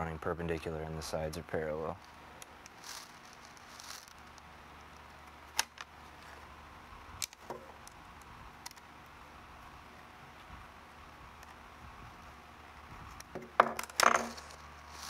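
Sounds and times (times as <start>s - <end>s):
faint room hum: 0.0s - 15.0s.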